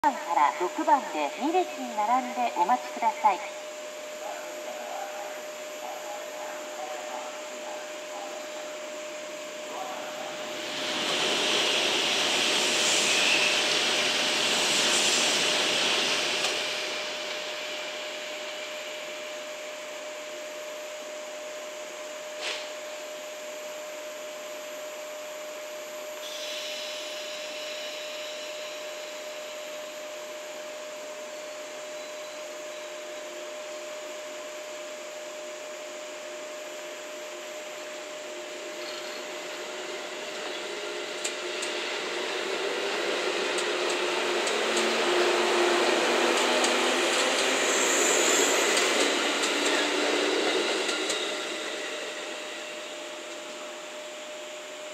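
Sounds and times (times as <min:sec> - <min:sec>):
electric train equipment humming: 0:00.0 - 0:54.9
loud hiss: 0:10.2 - 0:18.2, 0:26.2 - 0:29.2.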